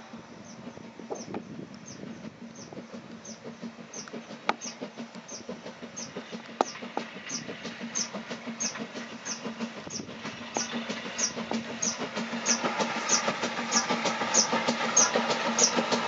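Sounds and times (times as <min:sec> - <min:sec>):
steam locomotive exhaust beats: 0:00.0 - 0:16.0.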